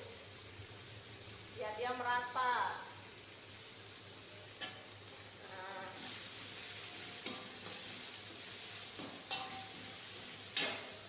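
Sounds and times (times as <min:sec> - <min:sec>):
sauce sizzling in a wok: 0:00.0 - 0:11.0
metal spatula scraping a wok: 0:05.8 - 0:11.0.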